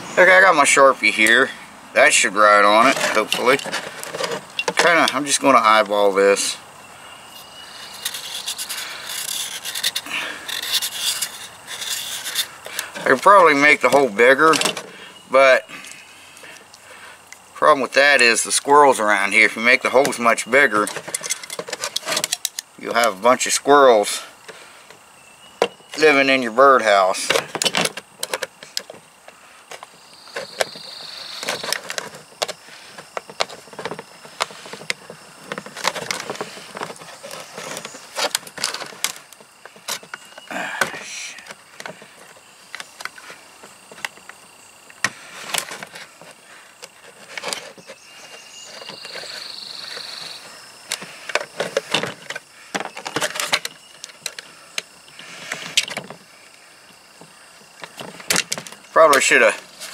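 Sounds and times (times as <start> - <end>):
knife scraping plastic: 7.4 - 13.2, 30.3 - 40.0.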